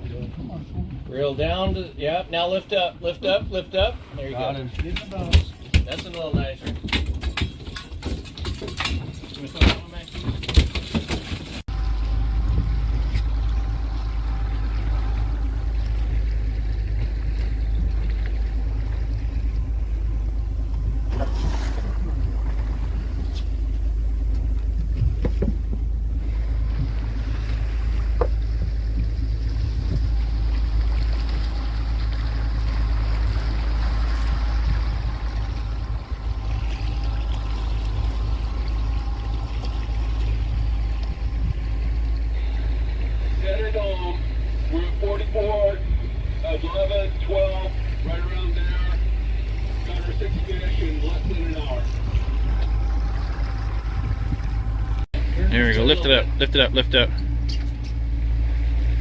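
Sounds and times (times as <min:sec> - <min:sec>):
motorboat engine running: 0:00.0 - 0:59.0.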